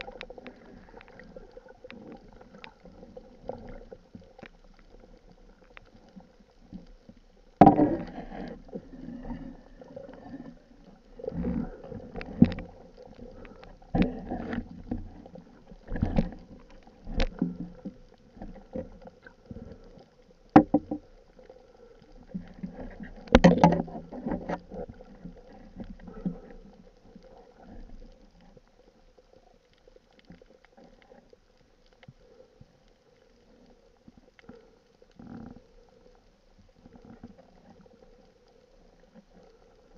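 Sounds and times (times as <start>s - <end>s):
muffled underwater knocks: 20.6s - 21.1s, 23.2s - 24.6s.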